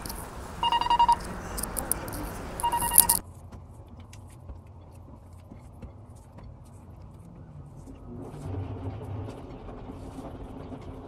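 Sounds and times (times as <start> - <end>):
rapid electronic beeping: 0.6 - 2.0, 2.6 - 3.2.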